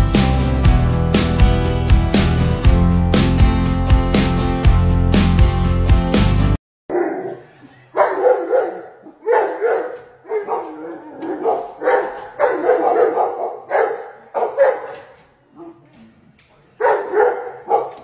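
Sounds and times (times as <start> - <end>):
dog barking: 6.9 - 15.9, 16.8 - 18.0.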